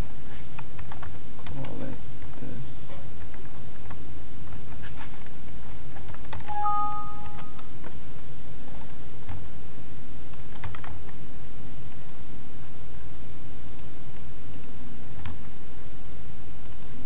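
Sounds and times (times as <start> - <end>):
two-tone warning chime: 6.5 - 7.6
low hum: 6.5 - 7.8
mouse clicks: 16.5 - 16.9.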